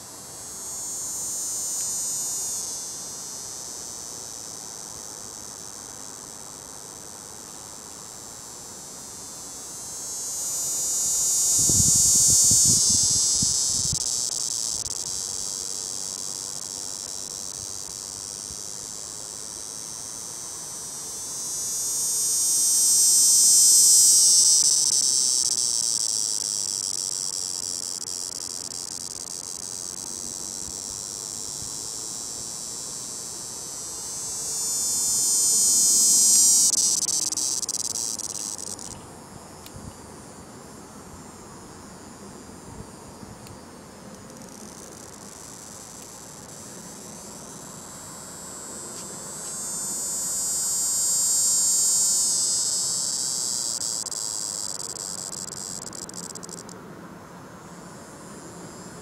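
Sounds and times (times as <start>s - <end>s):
cicada buzzing: 0.0s - 56.8s, 57.6s - 59.0s.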